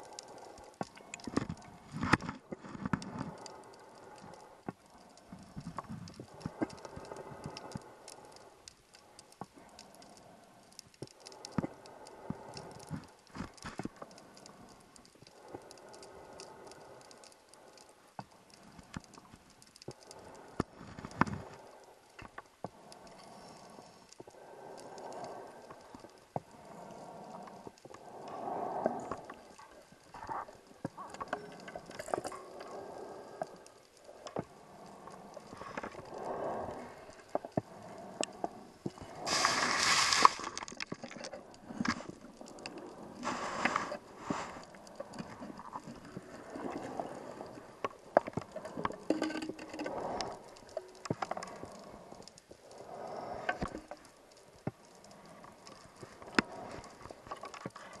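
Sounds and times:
regulator exhaled bubbles: 39.0 - 40.8.

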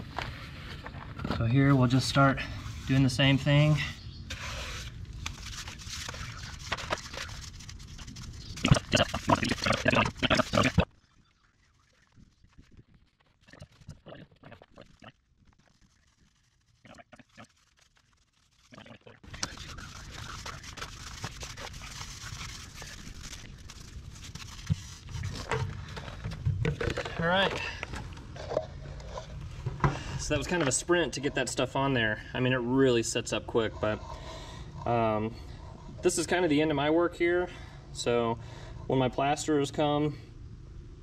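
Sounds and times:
soft scraping of cement: 33.3 - 36.4.

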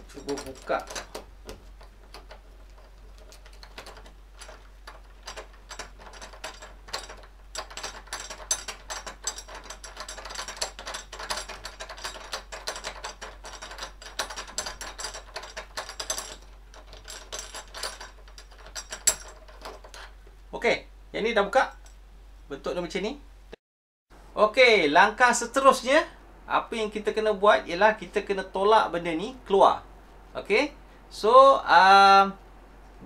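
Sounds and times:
small metal clicks and scrapes: 0.0 - 20.2.

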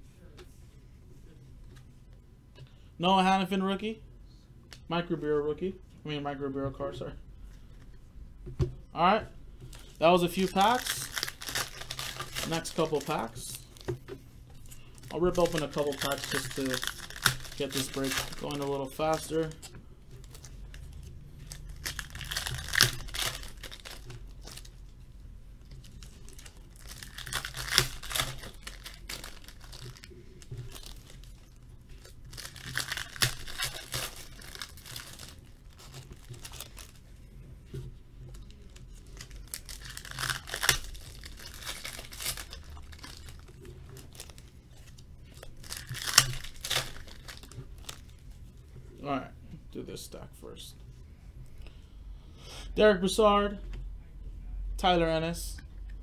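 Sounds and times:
foil wrappers tearing and crinkling: 9.8 - 13.9, 14.6 - 24.8, 25.8 - 37.0, 38.3 - 48.2.

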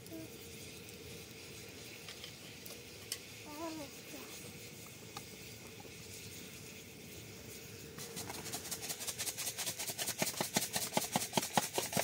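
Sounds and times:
utensil whisking in a cup: 8.0 - 12.0.

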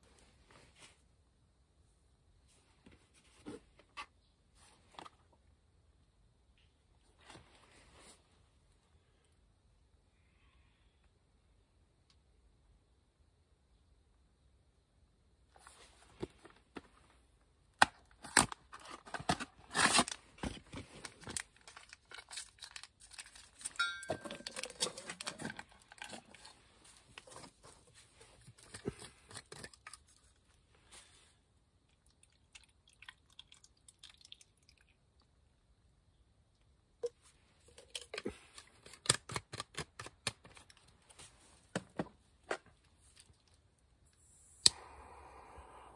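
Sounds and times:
foil pouch crinkling and tearing: 18.0 - 27.5.

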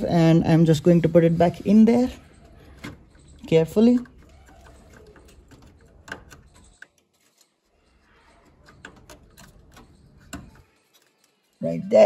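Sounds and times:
plastic relay clicks and knocks: 2.2 - 11.6.

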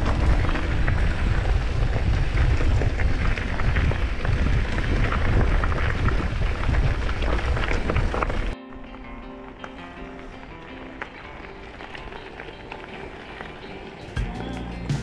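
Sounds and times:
bike tyres rattling on track: 0.0 - 8.6, 9.4 - 15.0
wind buffeting microphone: 0.0 - 8.6.

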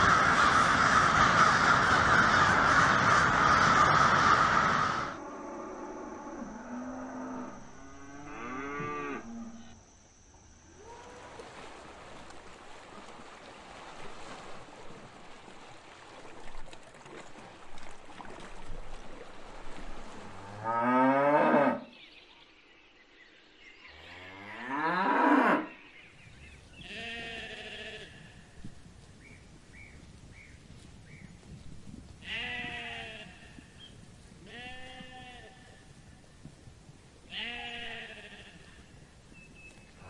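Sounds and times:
cattle mooing: 5.4 - 9.7.

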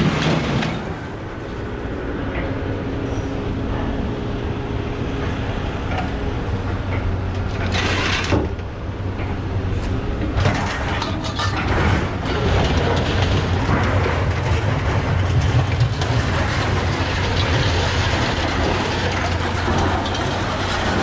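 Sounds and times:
scrap metal dragging and clanking: 5.2 - 21.0.

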